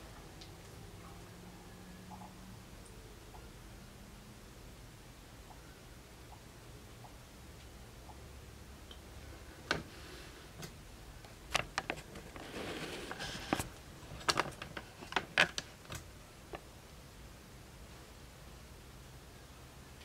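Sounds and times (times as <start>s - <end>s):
soft rustle: 11.9s - 15.8s.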